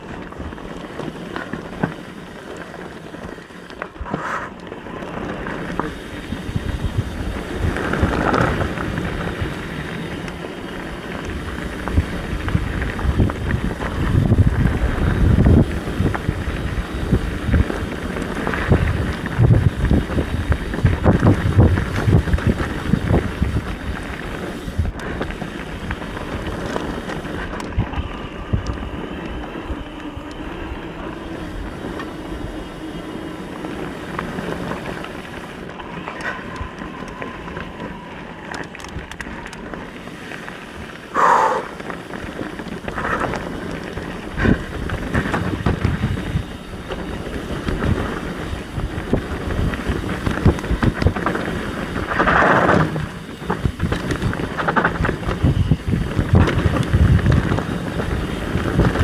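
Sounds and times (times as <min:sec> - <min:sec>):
bike knocking and rattling: 0:00.0 - 0:59.0
bike tyres on dirt and rock: 0:00.0 - 0:59.0
wind rushing over microphone: 0:00.0 - 0:59.0.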